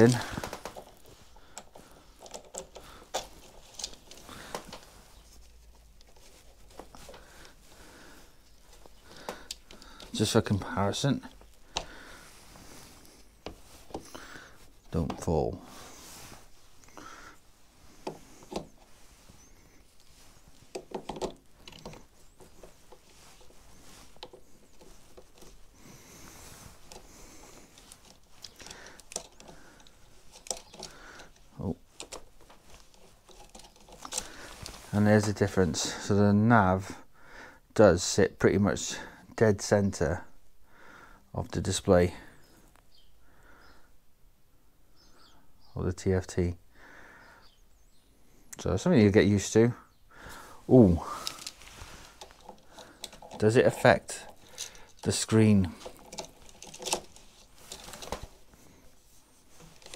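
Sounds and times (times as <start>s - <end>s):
phone cradle clicks and knocks: 20.7s - 22.0s.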